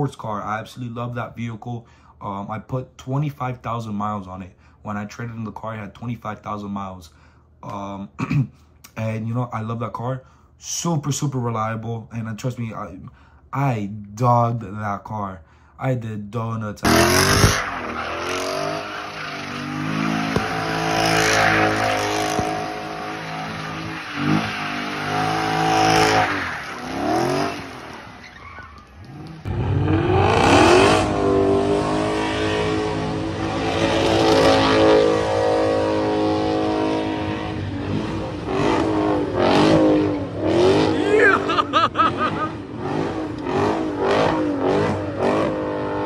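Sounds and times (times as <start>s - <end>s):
car engine revving hard: 16.9s - 28.2s, 29.0s - 46.0s
tyres squealing: 17.2s - 29.2s.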